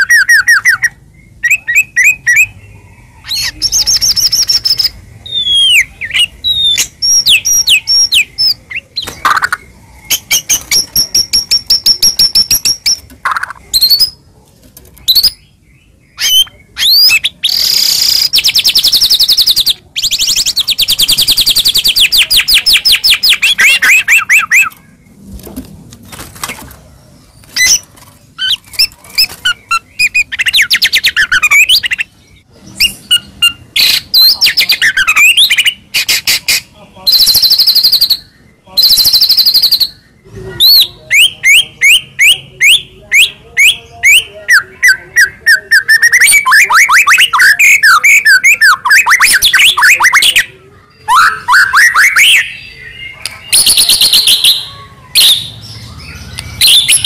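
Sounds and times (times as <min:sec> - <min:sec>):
songbird singing whistled phrases: 0:03.2 - 0:14.2, 0:15.0 - 0:15.6, 0:16.2 - 0:24.8, 0:37.1 - 0:57.0
fast bird trill: 0:16.2 - 0:24.8, 0:32.8 - 0:40.0, 0:40.7 - 0:57.0.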